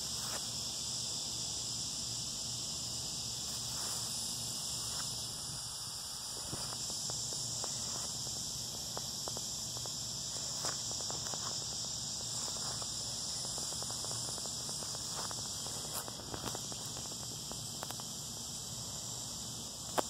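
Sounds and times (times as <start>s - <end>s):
high-pitched insect chorus: 0.0s - 20.0s
footsteps crunching on dry leaves: 3.4s - 5.6s, 6.4s - 17.9s.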